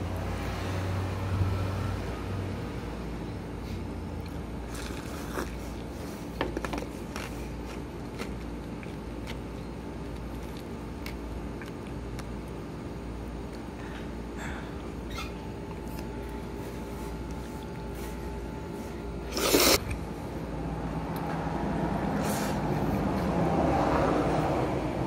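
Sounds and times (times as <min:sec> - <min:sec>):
vehicle passing: 0:00.0 - 0:03.0, 0:20.7 - 0:25.0
steady low hum: 0:00.0 - 0:25.0.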